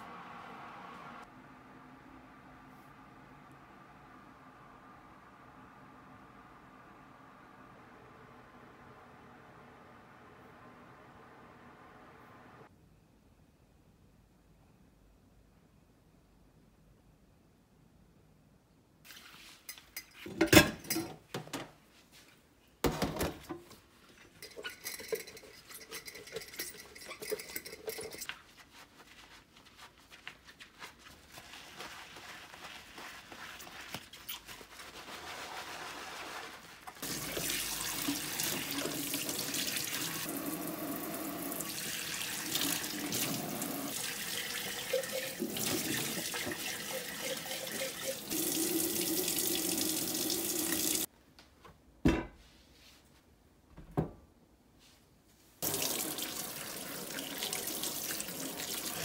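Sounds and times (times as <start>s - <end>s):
sponge scrubbing: 26.9s - 39.8s.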